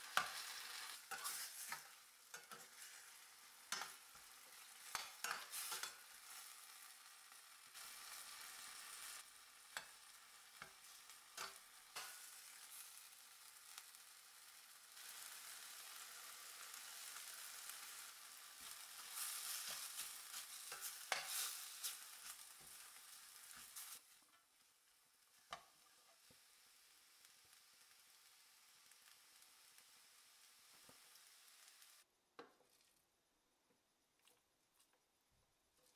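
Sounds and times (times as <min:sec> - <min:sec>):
food sizzling in oil: 0:00.0 - 0:32.1
spatula knocking and scraping pan: 0:00.1 - 0:06.0, 0:19.0 - 0:22.8.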